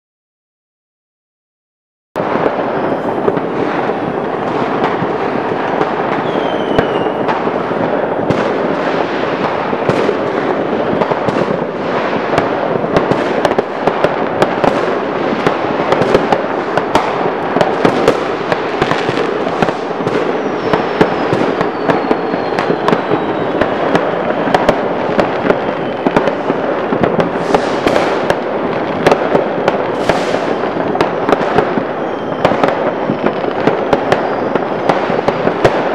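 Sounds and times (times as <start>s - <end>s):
firecrackers crackling: 2.2s - 35.9s
sharp firework bangs: 2.2s - 35.9s
faint falling whistles: 6.2s - 7.3s, 20.4s - 24.2s, 31.9s - 32.6s.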